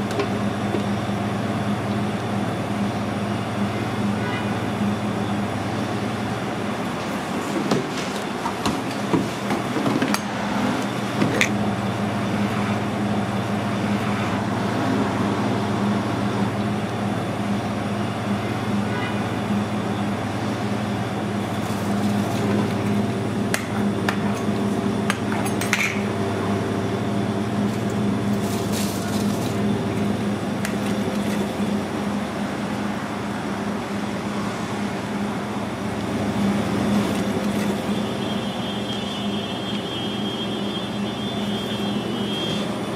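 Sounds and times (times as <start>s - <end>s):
kitchen machinery drone: 0.0s - 42.9s
utensils clinking on counter: 25.2s - 26.0s.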